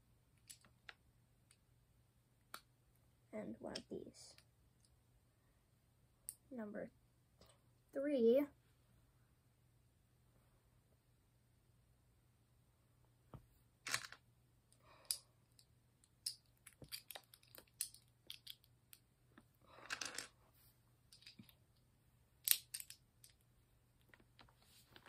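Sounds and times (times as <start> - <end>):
plastic bricks clicking: 0.4 - 1.0, 16.2 - 19.0, 19.8 - 20.3, 22.4 - 23.4.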